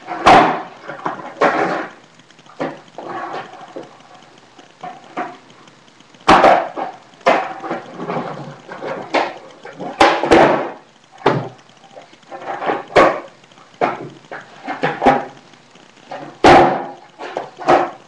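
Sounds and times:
skateboard wheels rolling: 0.0s - 4.1s, 6.2s - 11.5s
skateboard clacking: 0.0s - 15.5s, 16.1s - 18.0s.

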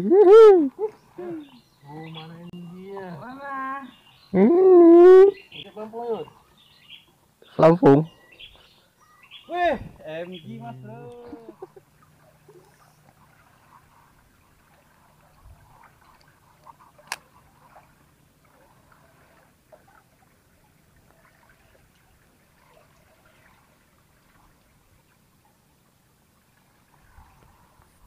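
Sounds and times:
riverside ambience: 0.0s - 20.6s.

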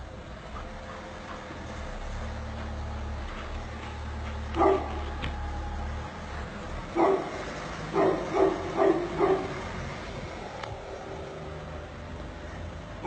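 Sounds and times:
dog barking: 4.6s - 5.0s, 7.0s - 9.6s.

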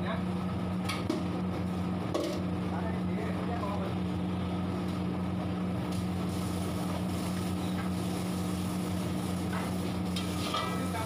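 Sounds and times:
metal spatula scraping: 10.2s - 10.9s.

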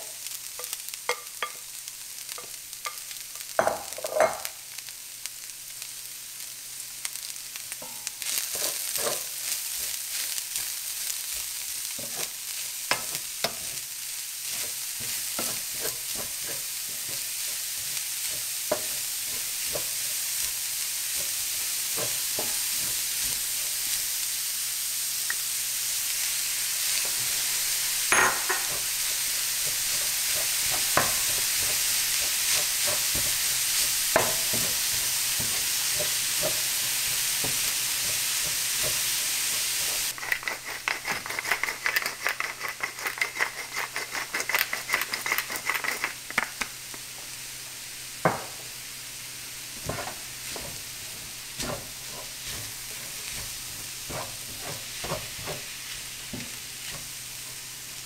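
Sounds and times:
vegetables sizzling in a skillet: 0.0s - 58.0s
wooden spatula scraping pan: 8.3s - 13.8s, 14.5s - 20.5s, 29.6s - 46.1s, 49.8s - 57.6s.

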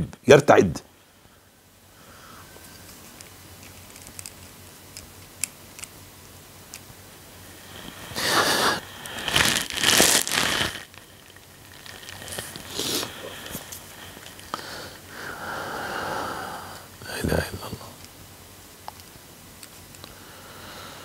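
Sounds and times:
faint clicks and rustles: 2.6s - 6.0s
man sniffling: 8.1s - 9.4s, 12.7s - 13.8s.

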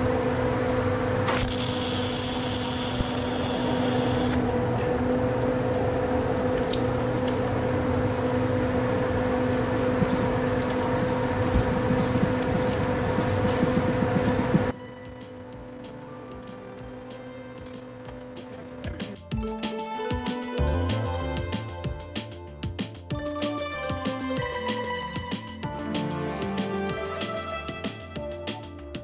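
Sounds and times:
welder arc hissing and crackling: 1.3s - 4.6s, 9.3s - 14.5s
steady hum: 2.2s - 14.8s.

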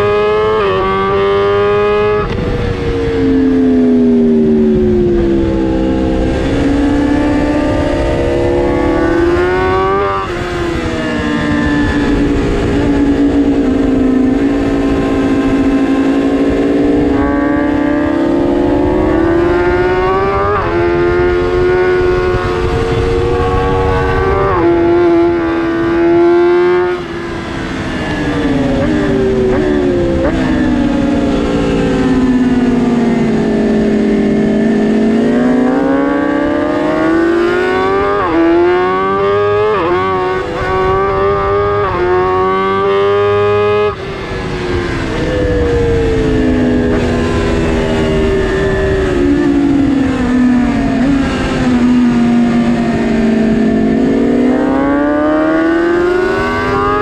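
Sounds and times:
motorcycle engine revving: 0.0s - 57.0s
wind rush: 0.0s - 57.0s.

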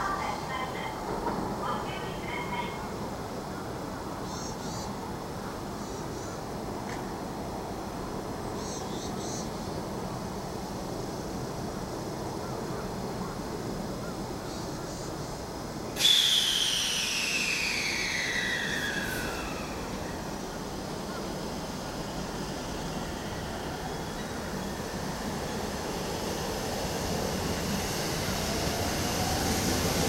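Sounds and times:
whistling tone falling in pitch: 16.0s - 20.6s
loud blast of escaping air: 16.0s - 23.4s.

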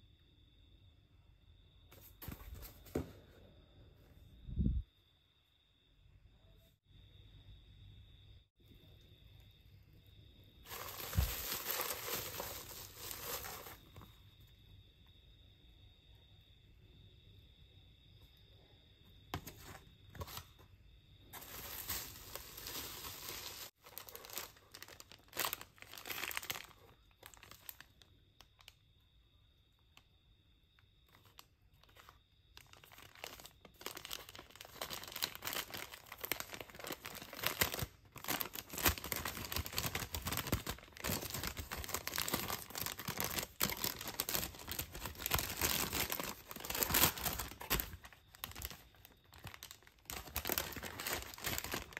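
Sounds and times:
paper bag rustling: 10.7s - 14.0s, 21.3s - 27.6s, 32.7s - 51.9s.

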